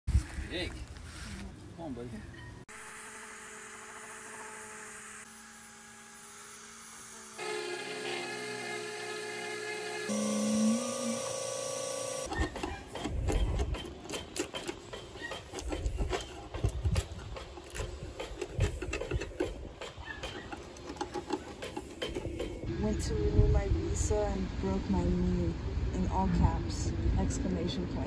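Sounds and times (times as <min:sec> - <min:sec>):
electric orbital sander running: 0:02.7 - 0:12.4
paint scraper scraping wood: 0:12.2 - 0:22.4.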